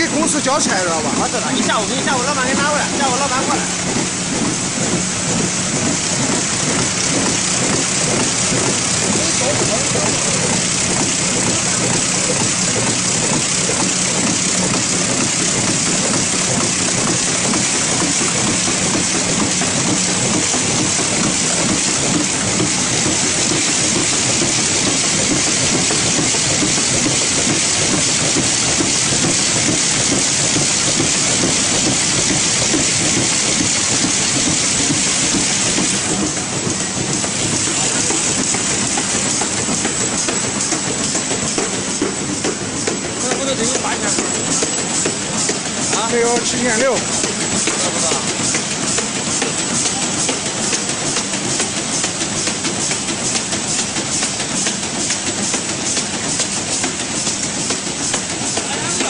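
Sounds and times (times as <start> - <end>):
machine clattering: 0.0 - 59.0
machine hiss: 0.0 - 59.0.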